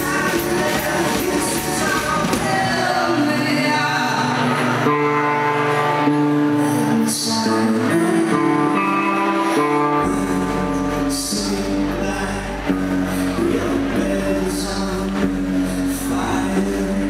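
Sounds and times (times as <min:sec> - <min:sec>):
bass guitar: 0:00.0 - 0:17.0
electric guitar: 0:00.0 - 0:17.0
person singing: 0:00.0 - 0:17.0.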